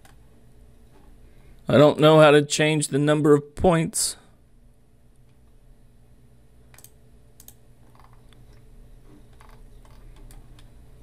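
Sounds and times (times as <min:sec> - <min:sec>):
low steady hum: 0:00.0 - 0:11.0
mouse and keyboard clicks: 0:06.7 - 0:08.6, 0:09.3 - 0:10.7.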